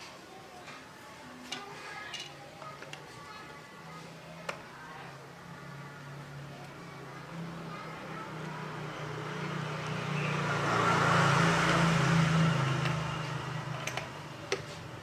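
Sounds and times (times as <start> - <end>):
vehicle passing by: 5.7 - 15.0.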